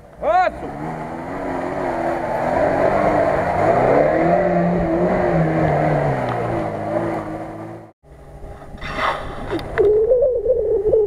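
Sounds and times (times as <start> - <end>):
car engine revving: 0.2 - 8.0.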